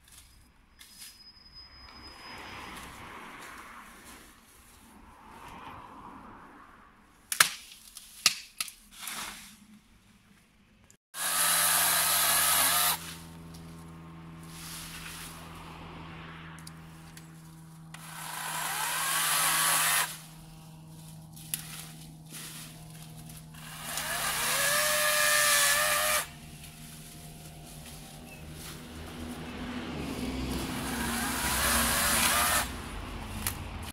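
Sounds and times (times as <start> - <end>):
electric chainsaw cutting branches: 11.2 - 15.7, 16.5 - 20.5, 21.3 - 33.6.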